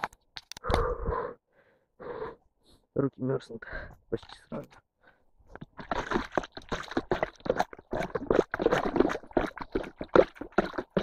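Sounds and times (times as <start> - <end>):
muddy water sloshing and splashing: 5.4 - 11.0.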